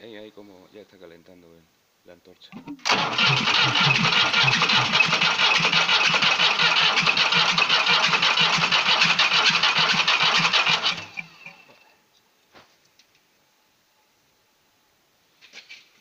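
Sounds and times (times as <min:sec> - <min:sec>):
starter motor cranking diesel engine: 0:02.6 - 0:11.7.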